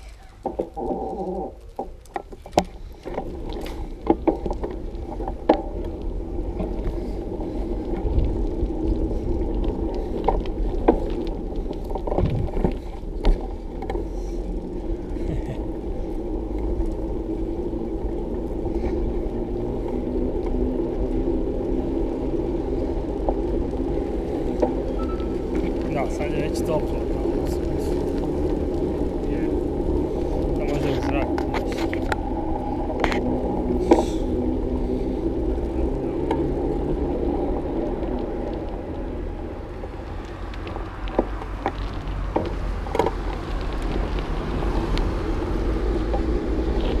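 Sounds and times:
bicycle tyres rumbling: 0.0s - 47.0s
wind on the microphone: 11.4s - 12.9s.

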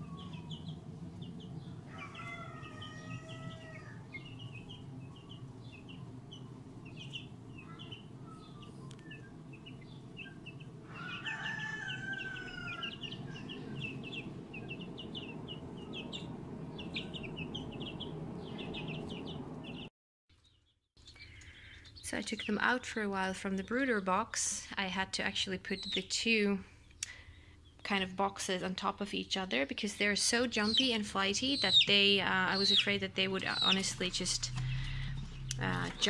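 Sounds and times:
washing machine humming: 0.0s - 19.9s, 30.5s - 36.0s
chicks peeping: 0.0s - 22.8s, 25.7s - 26.1s, 30.2s - 36.0s.

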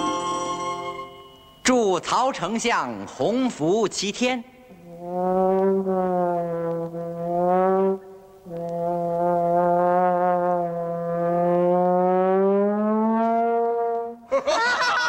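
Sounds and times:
low brass long notes: 4.8s - 14.3s.

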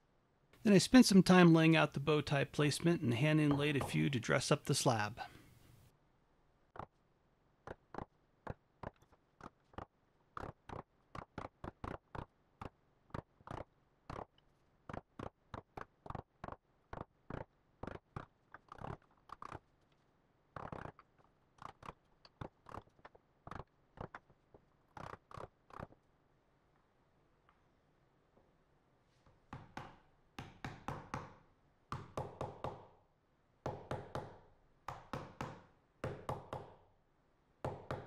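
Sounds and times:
mallet tapping chisel into wood: 29.6s - 32.9s, 33.6s - 36.8s.

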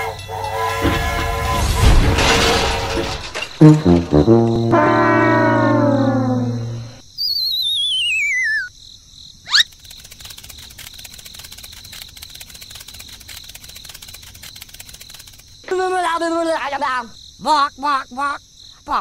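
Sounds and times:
crickets chirping: 3.0s - 19.0s
warbling whistle sliding downward: 4.7s - 8.7s.

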